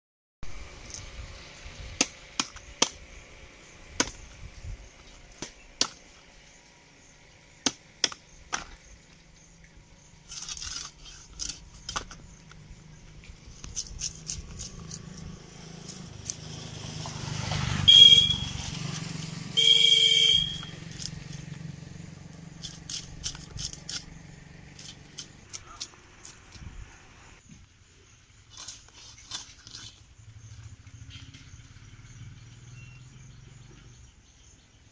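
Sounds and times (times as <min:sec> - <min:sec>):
vehicle rumble: 0:00.4 - 0:28.5, 0:29.6 - 0:34.8
knife scraping fish scales: 0:10.2 - 0:12.2, 0:13.5 - 0:16.4, 0:20.8 - 0:21.5, 0:22.6 - 0:24.1, 0:24.7 - 0:26.5, 0:28.5 - 0:30.0
vehicle horn: 0:17.7 - 0:20.9.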